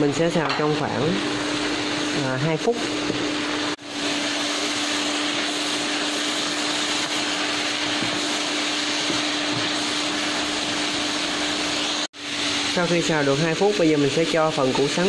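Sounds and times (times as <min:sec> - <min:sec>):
filling sizzling in a wok: 0:00.9 - 0:15.0.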